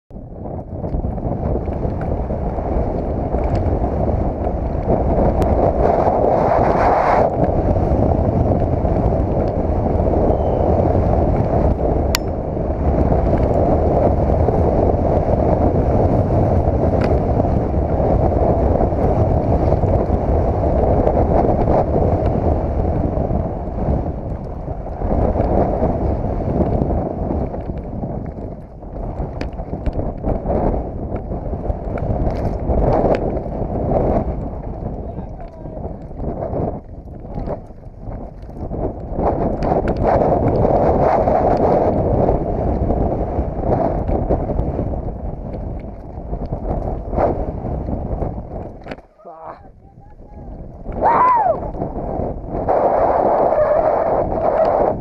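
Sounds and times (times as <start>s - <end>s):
bike tyres rumbling on dirt: 0.1s - 55.0s
wind buffeting microphone: 0.1s - 55.0s
bike clicks and rattles: 0.4s - 6.2s, 10.8s - 49.2s.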